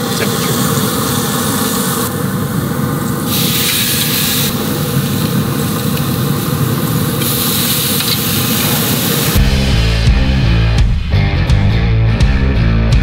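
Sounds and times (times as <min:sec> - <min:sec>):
steaks sizzling: 0:00.0 - 0:09.8
grill fire and fan drone: 0:00.0 - 0:10.8.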